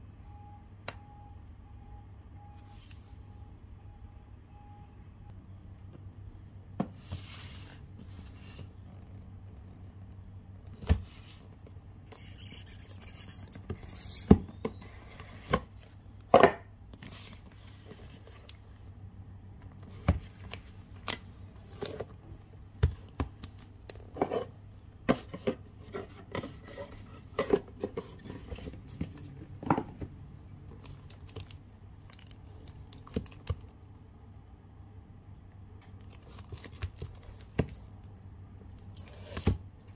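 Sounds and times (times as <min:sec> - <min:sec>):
low steady hum: 0:00.0 - 0:39.9
hands handling cardboard box: 0:22.8 - 0:30.1.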